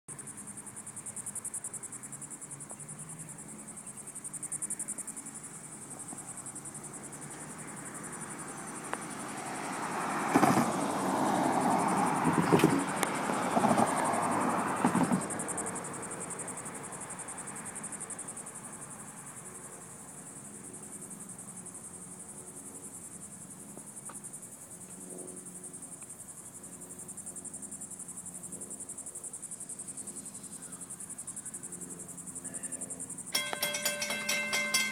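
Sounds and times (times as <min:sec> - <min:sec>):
insects trilling: 0:00.1 - 0:34.9
cars driving past: 0:00.3 - 0:24.6.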